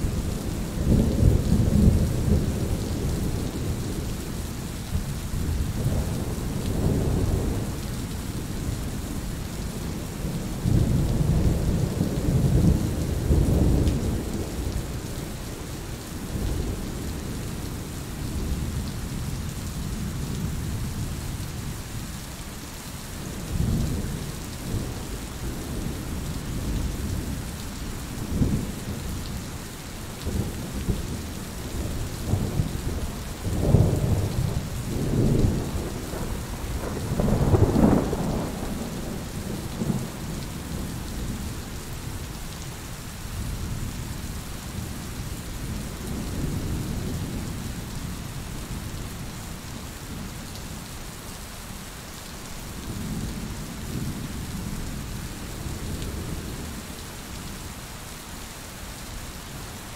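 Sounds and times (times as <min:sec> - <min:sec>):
steady rain: 0:00.0 - 0:59.9
thunder rumbling: 0:30.3 - 0:42.0.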